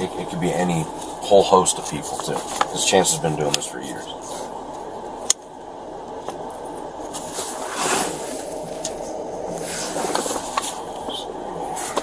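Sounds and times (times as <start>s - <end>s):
camera rubbing against clothing: 7.2s - 10.9s.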